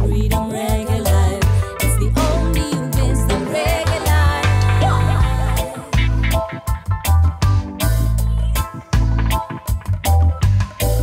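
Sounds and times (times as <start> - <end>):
reggae song with heavy bass: 0.0 - 11.0.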